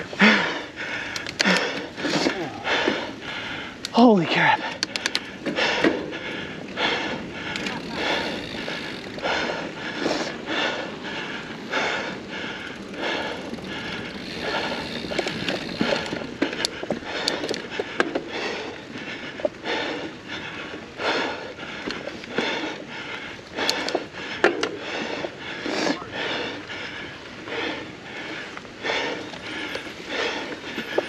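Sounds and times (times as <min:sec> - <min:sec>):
person breathing hard: 0:00.0 - 0:31.0
sharp clicks: 0:04.6 - 0:05.4.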